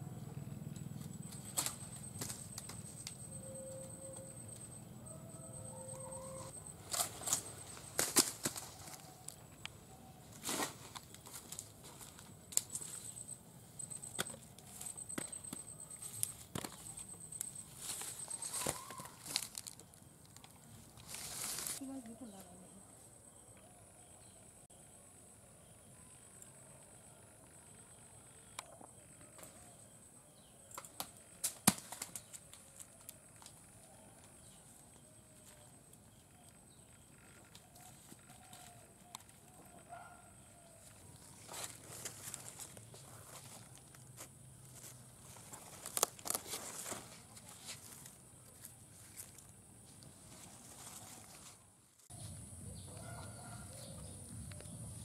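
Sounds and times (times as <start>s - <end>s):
faint wavering calls: 0.0s - 7.9s, 12.8s - 19.7s
footsteps in undergrowth: 6.4s - 9.6s, 10.2s - 13.3s, 14.6s - 20.1s, 20.8s - 22.4s, 40.7s - 53.6s
leaves rustling: 17.6s - 20.0s, 20.8s - 22.4s, 44.7s - 52.4s
stems snapping: 30.7s - 33.6s, 45.7s - 47.0s.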